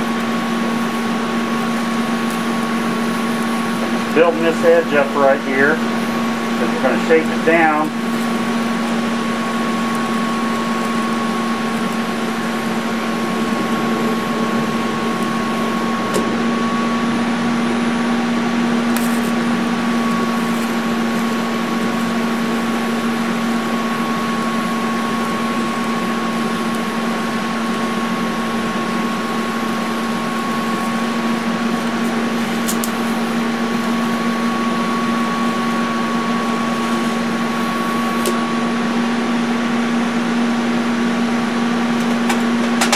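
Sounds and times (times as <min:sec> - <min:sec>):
welding arc buzzing: 0:00.0 - 0:42.9.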